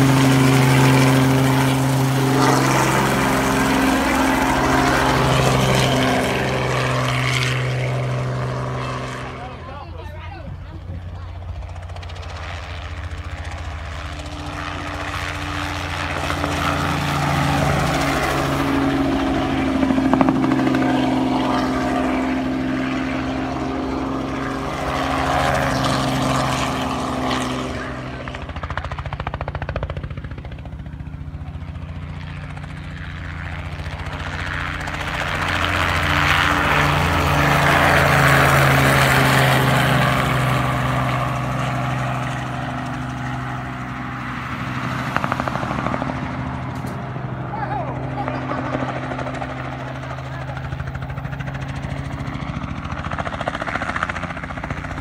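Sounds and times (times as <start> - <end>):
helicopter flying low: 0.0 - 55.0.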